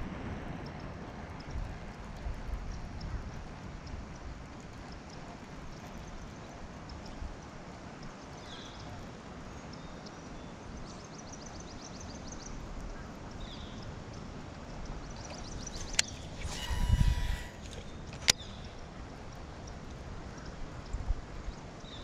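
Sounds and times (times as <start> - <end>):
wind rumble on microphone: 0.0 - 22.0
fishing reel ticking: 15.5 - 18.3.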